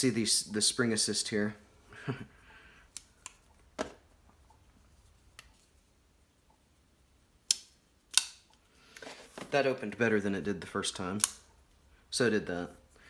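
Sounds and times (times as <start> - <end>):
sharp metallic clicks: 11.0 - 11.6.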